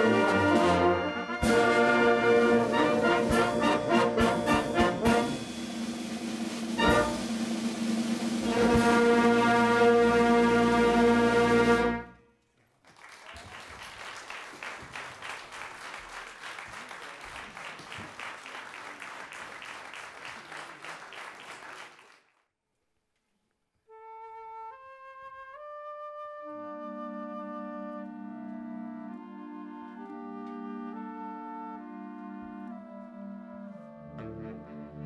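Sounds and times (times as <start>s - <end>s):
woodwind playing held notes: 0.0s - 7.6s, 8.3s - 12.3s, 23.9s - 35.0s
wind band final chord: 0.0s - 11.2s
audience applause: 12.6s - 22.4s.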